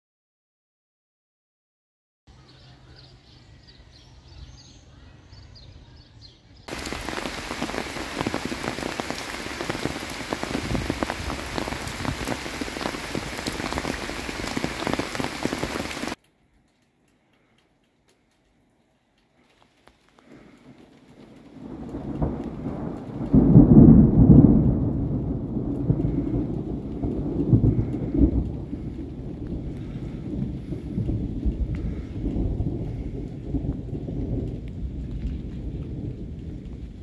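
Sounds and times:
heavy rain pouring: 6.7 - 16.2, 19.4 - 37.0.

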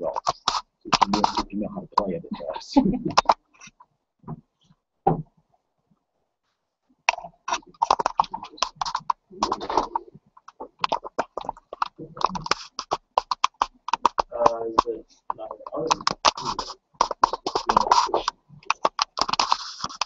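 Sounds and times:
indistinct talking: 0.0 - 3.4, 7.5 - 12.9, 14.2 - 19.2.

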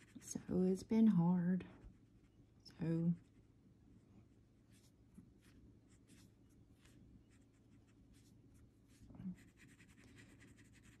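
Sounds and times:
scratchy coloring on paper: 0.0 - 0.8, 8.9 - 11.0.

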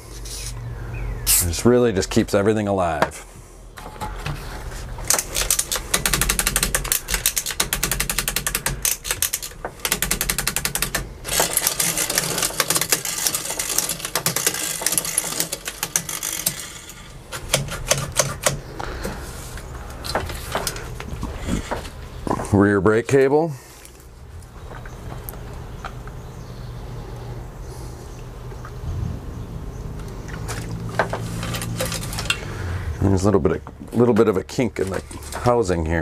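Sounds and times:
bicycle hub ratcheting clicks: 5.1 - 18.6.

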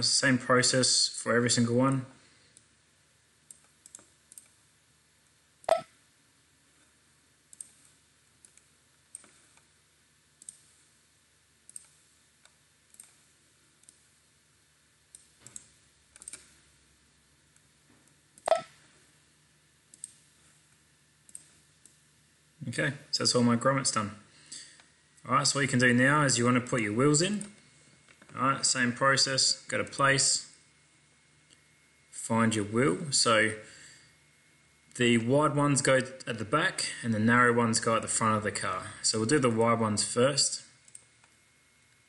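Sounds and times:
computer mouse clicking: 3.4 - 4.6, 7.5 - 9.7, 10.4 - 10.8, 11.7 - 14.1, 15.1 - 16.6, 19.9 - 20.2, 21.2 - 22.0, 40.9 - 41.4.

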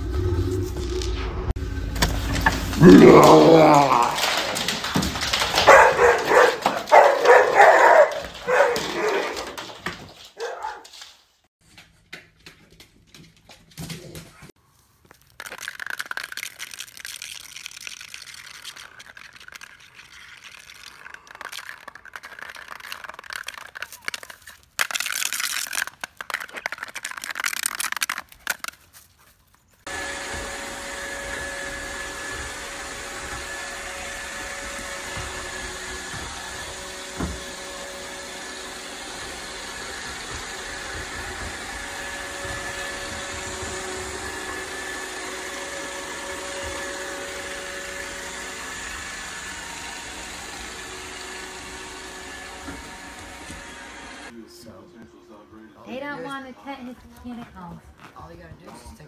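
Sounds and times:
robot vacuum cleaner humming: 29.9 - 54.4.

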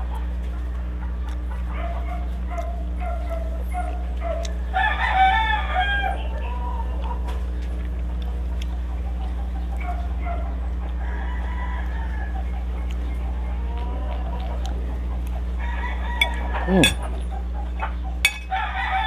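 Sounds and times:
chickens clucking: 0.0 - 19.0
steady low hum: 0.0 - 19.0
rooster crowing: 4.7 - 7.0, 11.0 - 12.5, 15.6 - 17.0, 18.4 - 19.0.

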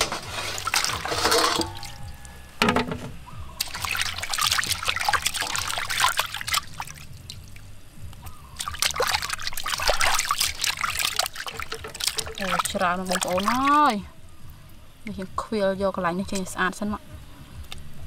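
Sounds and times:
water splashing in metal basin: 0.0 - 14.1.

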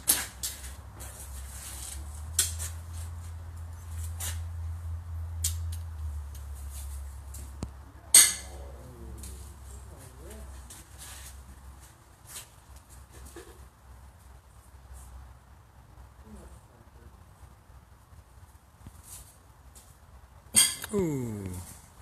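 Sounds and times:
horseshoes clanking metallically: 8.1 - 8.6, 20.5 - 21.1.

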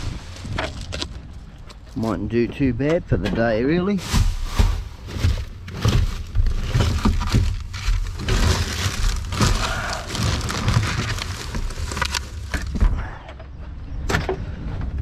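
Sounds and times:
plastic bags crinkling: 5.0 - 12.8.

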